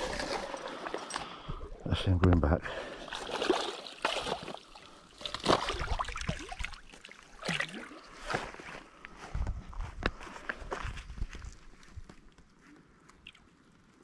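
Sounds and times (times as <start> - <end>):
lake water sloshing and splashing: 0.0 - 8.8.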